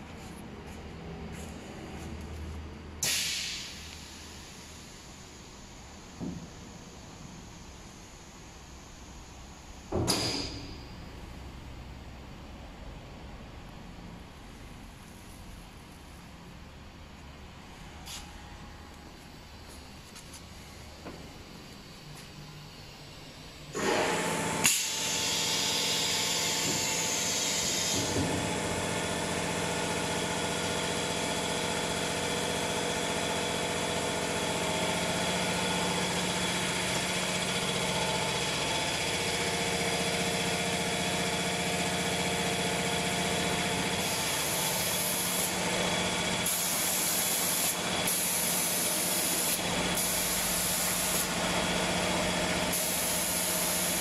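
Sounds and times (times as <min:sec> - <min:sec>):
spray painting machine hum: 0:00.0 - 0:08.6, 0:19.0 - 0:54.0
hissing spray bursts: 0:03.0 - 0:03.9, 0:44.0 - 0:45.6, 0:46.4 - 0:51.4, 0:52.7 - 0:54.0.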